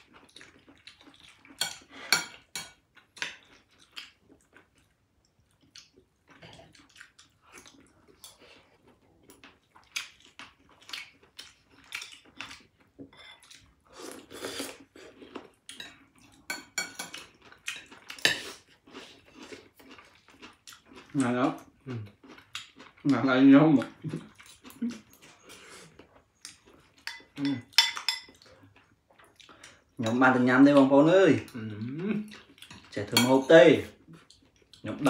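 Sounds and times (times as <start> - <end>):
cutlery clinking on plates: 1.6 - 3.4, 15.8 - 18.5, 27.0 - 28.4.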